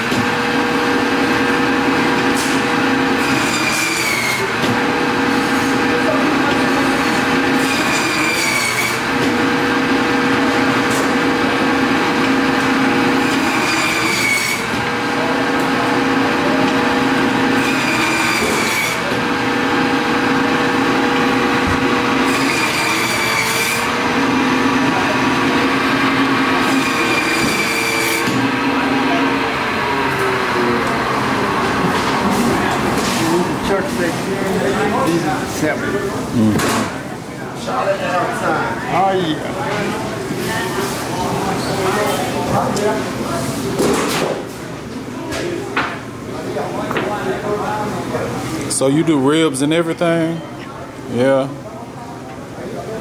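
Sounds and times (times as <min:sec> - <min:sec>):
meat band saw running: 0:00.0 - 0:37.0
saw blade screeching: 0:03.2 - 0:04.5, 0:07.6 - 0:09.0, 0:13.3 - 0:14.7, 0:17.6 - 0:19.1, 0:22.2 - 0:23.9, 0:26.6 - 0:28.4.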